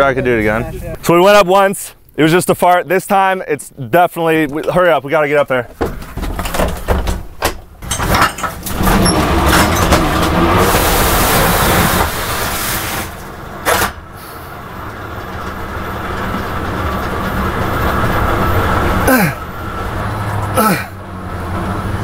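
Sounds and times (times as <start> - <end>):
vehicle engine accelerating: 8.5 - 22.0.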